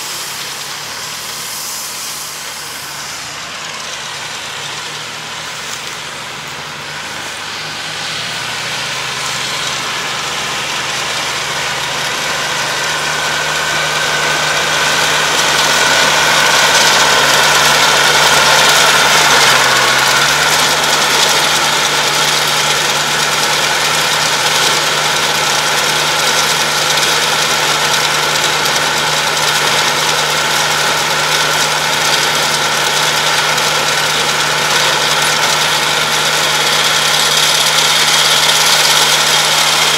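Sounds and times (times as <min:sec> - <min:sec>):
high whine: 0:00.0 - 0:39.9
tractor diesel engine running: 0:00.0 - 0:39.9.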